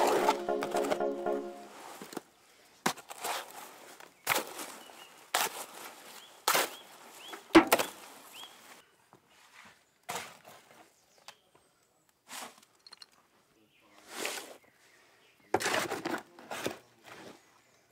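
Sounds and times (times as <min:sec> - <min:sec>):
spade scraping wet cement: 0:15.6 - 0:16.7.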